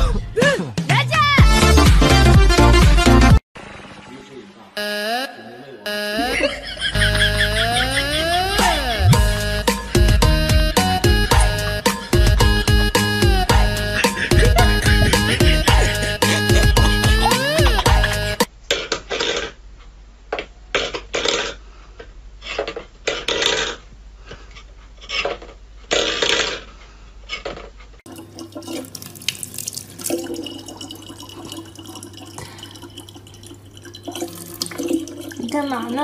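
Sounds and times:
tap running water into bottle: 28.1 - 35.9.

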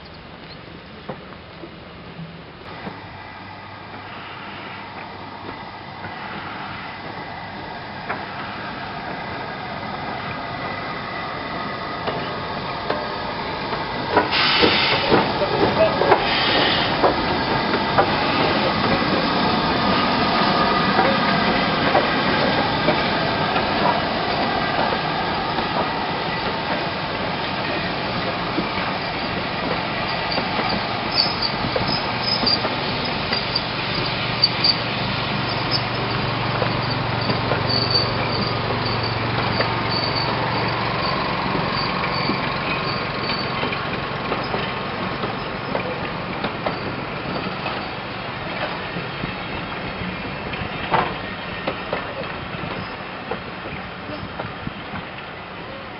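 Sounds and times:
train wheels rumbling: 0.2 - 55.9
wheels clicking over rail joints: 12.0 - 55.8
high wheel squeals: 30.0 - 43.8.

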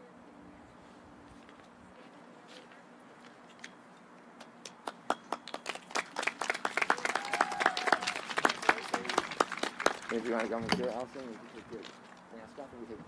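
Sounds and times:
crowd applause: 5.4 - 10.8.

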